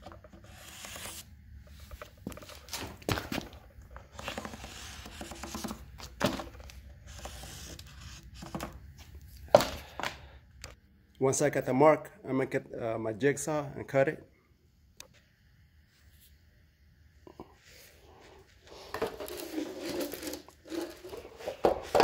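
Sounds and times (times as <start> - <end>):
scratchy rubbing of drawing line: 0.3 - 1.3, 7.1 - 8.2.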